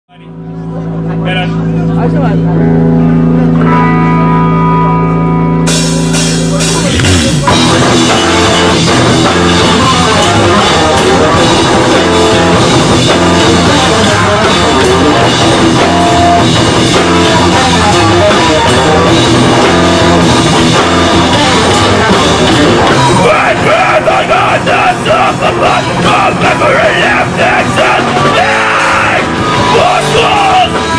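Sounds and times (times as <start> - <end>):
bass guitar: 0.1 - 30.9
electric guitar: 0.3 - 30.9
drum kit: 2.7 - 30.9
screamed vocals: 23.2 - 30.9.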